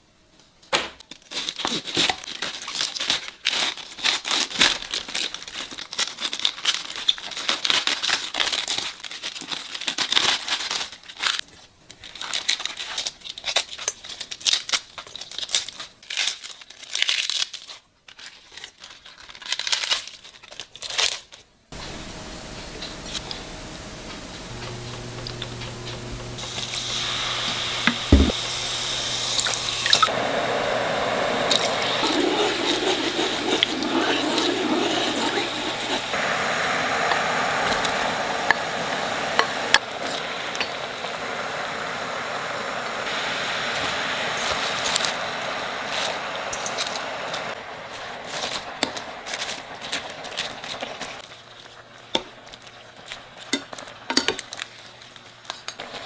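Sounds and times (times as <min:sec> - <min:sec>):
lettuce leaves tearing: 0:01.1 - 0:21.4, 0:43.8 - 0:56.0
low steady hum: 0:21.8 - 0:52.8
knock: 0:27.9 - 0:28.4.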